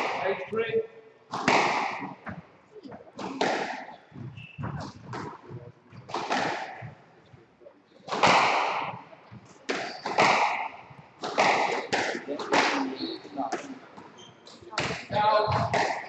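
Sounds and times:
squash ball cracking off walls: 0:01.3 - 0:02.2, 0:06.1 - 0:06.9, 0:08.1 - 0:09.0, 0:09.7 - 0:12.9, 0:14.8 - 0:16.0.

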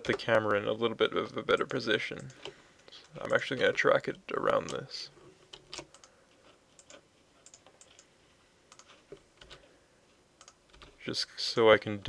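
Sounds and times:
computer keyboard and mouse clicks: 0:05.5 - 0:06.1, 0:06.7 - 0:08.1, 0:08.7 - 0:09.6, 0:10.4 - 0:11.0.

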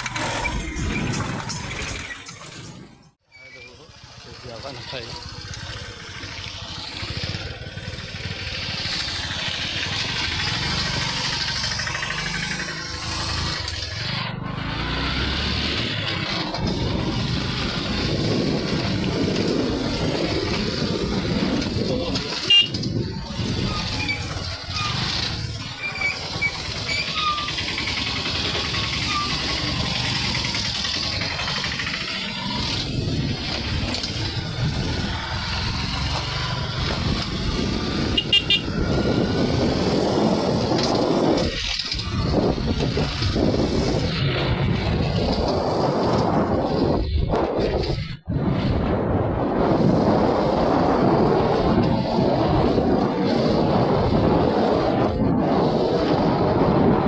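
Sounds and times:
auto-rickshaw passing: 0:00.0 - 0:57.0
wind and road noise: 0:00.0 - 0:57.0
motorcycle engine running: 0:03.7 - 0:47.6.

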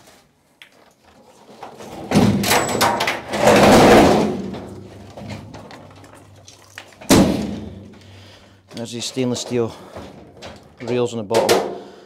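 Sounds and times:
metal cabinet scraping: 0:01.3 - 0:05.9.

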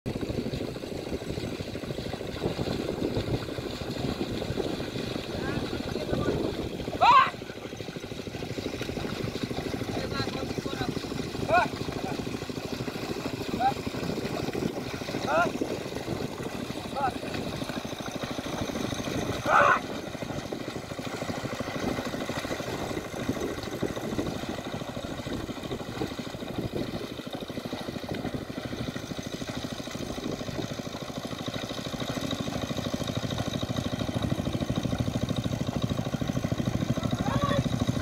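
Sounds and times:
small engine puttering: 0:00.1 - 0:38.0
person calling: 0:07.0 - 0:07.4, 0:19.4 - 0:19.8.

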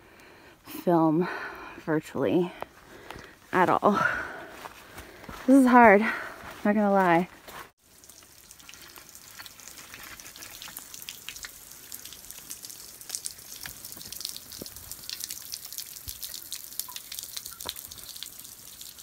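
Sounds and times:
water dripping on rock: 0:07.9 - 0:19.0.

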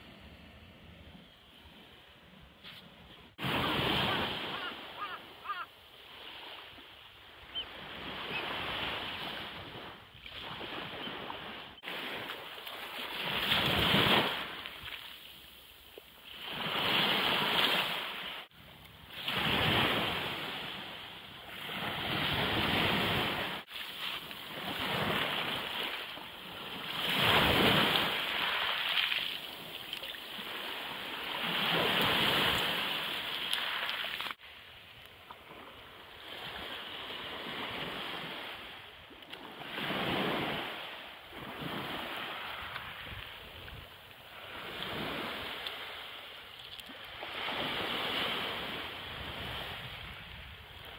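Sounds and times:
waves breaking on shingle beach: 0:03.4 - 0:06.8, 0:07.8 - 0:15.2, 0:21.5 - 0:34.5.

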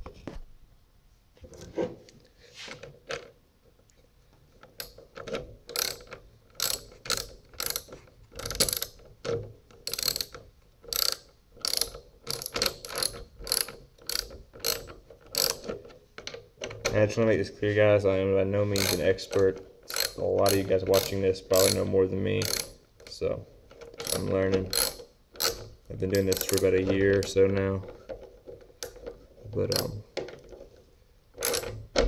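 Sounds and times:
socket ratchet clicking: 0:04.6 - 0:15.8, 0:18.8 - 0:23.2, 0:23.8 - 0:27.4, 0:28.8 - 0:30.0, 0:31.4 - 0:32.0.

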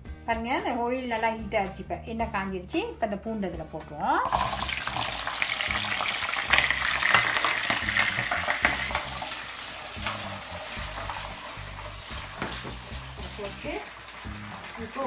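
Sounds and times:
garlic sizzling in oil: 0:04.3 - 0:15.0.

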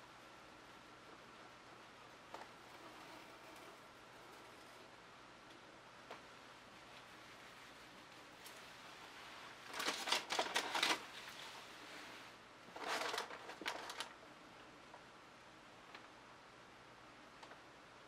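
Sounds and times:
crackly rustling of canvas: 0:06.1 - 0:14.2.

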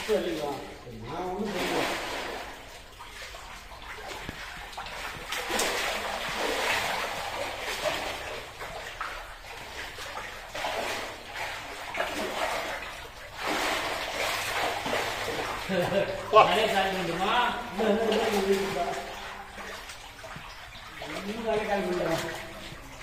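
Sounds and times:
shallow water splashing: 0:00.0 - 0:23.0.

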